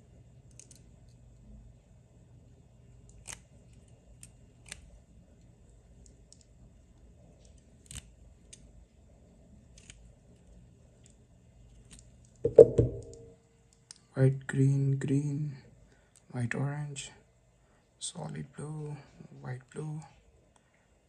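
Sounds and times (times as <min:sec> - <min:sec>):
scissor blades and wires clicking: 0:00.5 - 0:00.8, 0:03.1 - 0:04.9, 0:07.4 - 0:08.7, 0:09.7 - 0:10.1
louder knock: 0:12.5 - 0:13.3.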